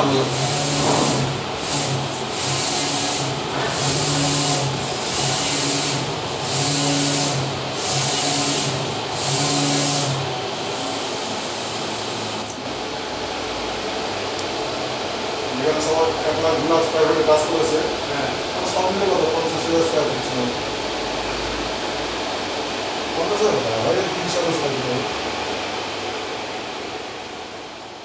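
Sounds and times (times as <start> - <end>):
printer carriage shuttling: 0.7 - 1.5.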